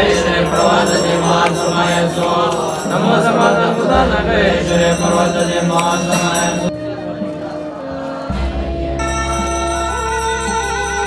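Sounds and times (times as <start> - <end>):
steady low drone: 0.0 - 7.7
double-reed oboes playing melody: 6.7 - 11.0.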